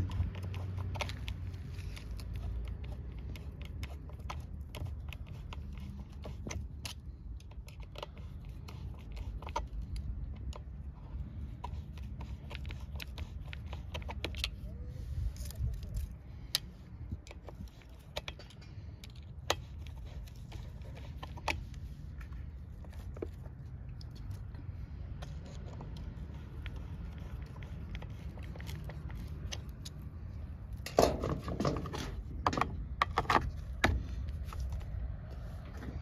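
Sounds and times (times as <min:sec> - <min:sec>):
screwdriver scraping metal: 0:17.3 - 0:24.4.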